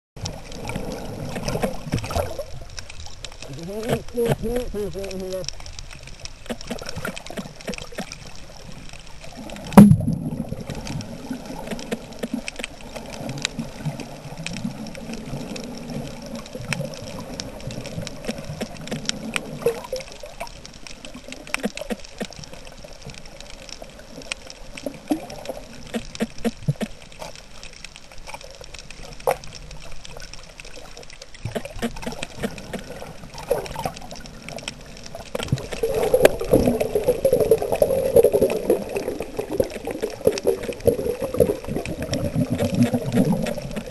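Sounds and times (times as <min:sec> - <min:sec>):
underwater rush of water: 0:00.2 - 0:43.9
sharp clicks: 0:02.8 - 0:08.3, 0:11.6 - 0:12.7, 0:21.3 - 0:22.4, 0:25.8 - 0:27.0, 0:31.4 - 0:33.0.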